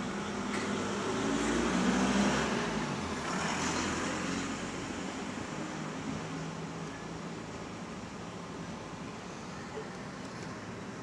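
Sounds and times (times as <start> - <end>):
vehicle passing by: 0.0 - 6.7.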